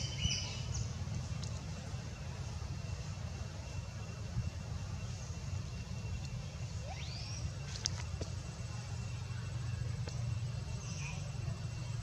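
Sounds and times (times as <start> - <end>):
faint rising chirp: 2.1 - 11.8.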